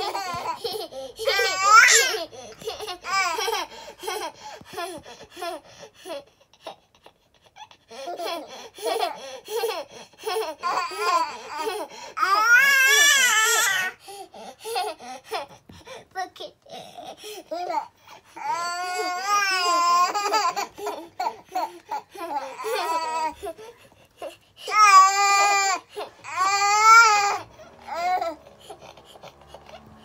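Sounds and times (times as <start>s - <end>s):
children laughing and babbling: 0.0s - 7.1s, 17.4s - 30.0s.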